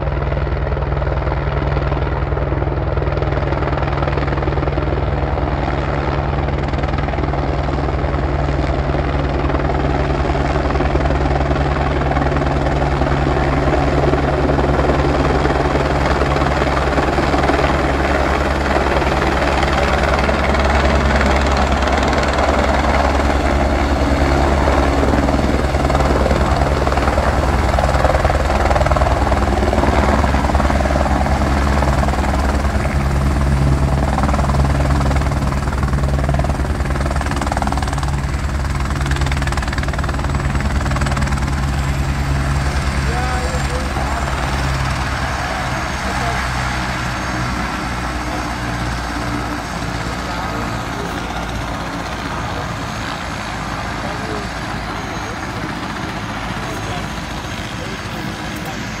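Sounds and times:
helicopter rotor and engine: 0.0 - 59.0.

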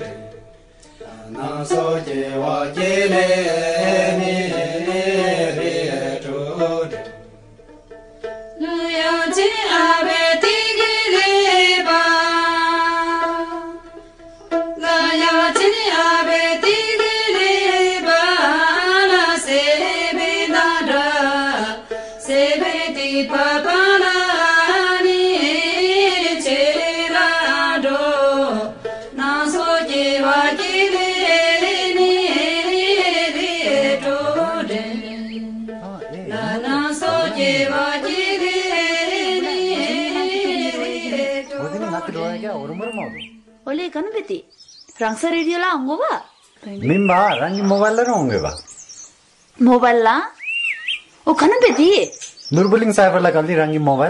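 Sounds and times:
person singing over instrumental backing: 14.8 - 43.7.

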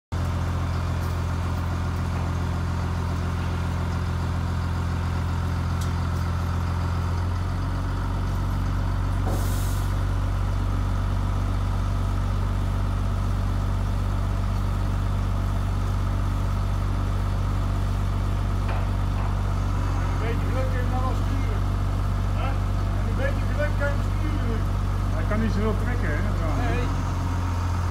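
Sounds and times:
truck engine running: 0.1 - 27.9
short hiss: 9.2 - 10.0.

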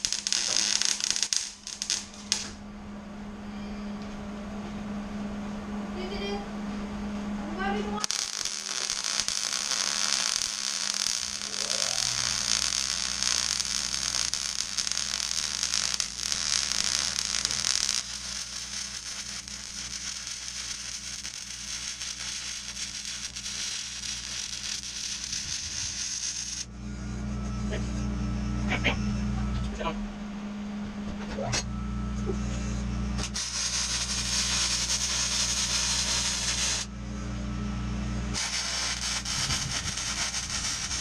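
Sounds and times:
welding arc hissing: 0.0 - 2.6, 8.0 - 26.7, 33.2 - 36.9, 38.3 - 41.0
low hum: 0.0 - 41.0.

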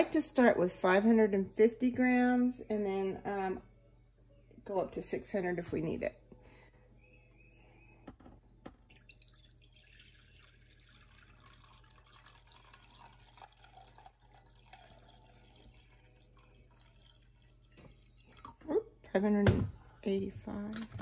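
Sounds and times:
water pouring into glass jug: 8.9 - 18.6.

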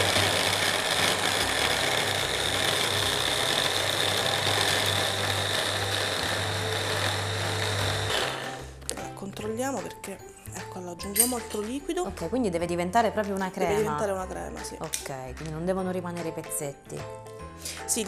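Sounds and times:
hand blender motor whining: 0.0 - 8.8.

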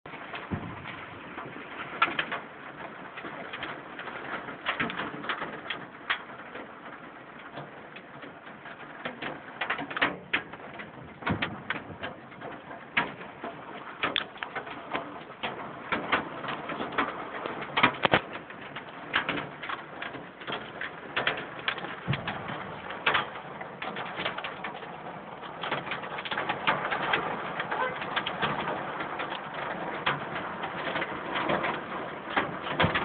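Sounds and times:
hail striking: 0.1 - 33.0.

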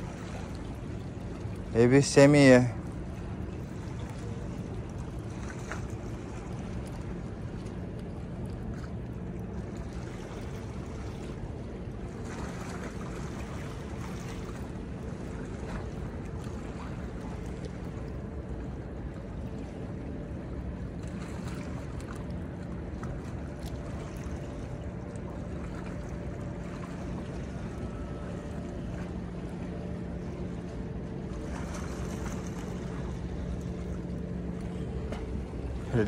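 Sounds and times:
low engine hum: 0.0 - 36.0
water against breakwater: 0.0 - 36.0
wind: 0.0 - 36.0.

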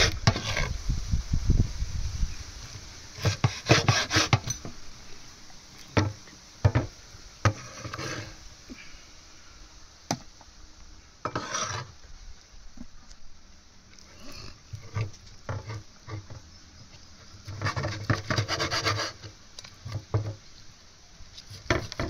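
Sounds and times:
short scrape on wood: 0.0 - 0.8, 3.2 - 4.7, 7.5 - 8.4, 11.3 - 12.0, 17.4 - 19.3.

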